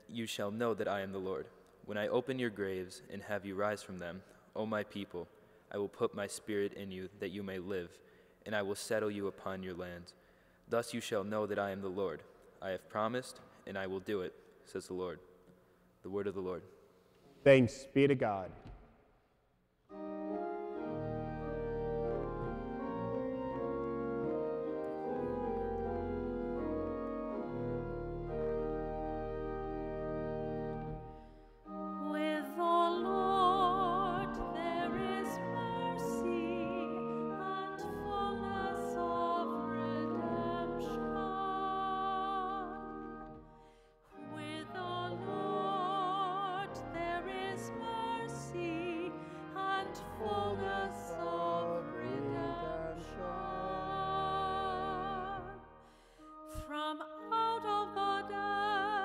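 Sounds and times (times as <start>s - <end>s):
organ chords: 19.8s - 59.0s
woman singing with vibrato: 32.0s - 43.0s, 44.2s - 55.7s, 56.5s - 59.0s.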